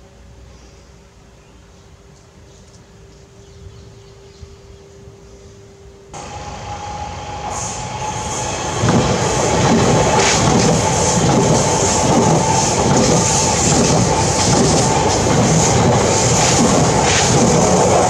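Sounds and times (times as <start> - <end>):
steady high tone: 4.0 - 10.2
train wheels rushing on rail: 6.2 - 18.0.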